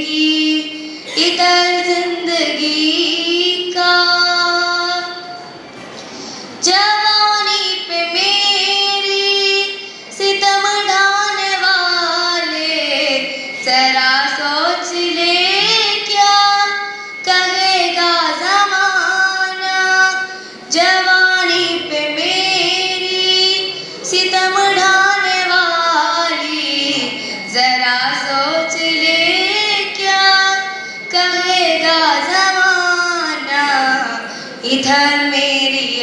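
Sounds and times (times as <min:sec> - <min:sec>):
woman singing unaccompanied: 0:00.0 - 0:05.4, 0:06.6 - 0:36.0
singer breathing: 0:06.0 - 0:06.6, 0:20.3 - 0:20.7, 0:27.0 - 0:27.5, 0:34.3 - 0:34.6.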